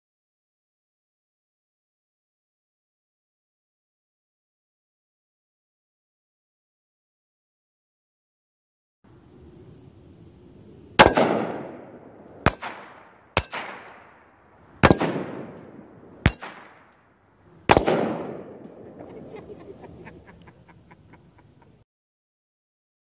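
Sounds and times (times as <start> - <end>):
gunshots: 11.0 - 14.2, 14.8 - 16.9, 17.7 - 19.5.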